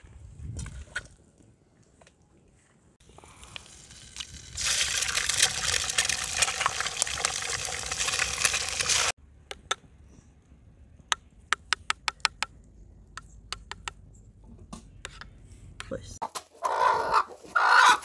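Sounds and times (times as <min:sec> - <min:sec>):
eggs sizzling in hot oil: 0:03.6 - 0:09.2.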